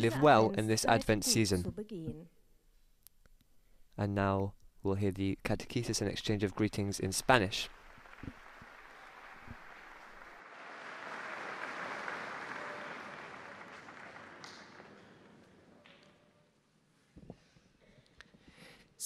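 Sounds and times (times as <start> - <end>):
audience applauding: 6.4 - 16.3.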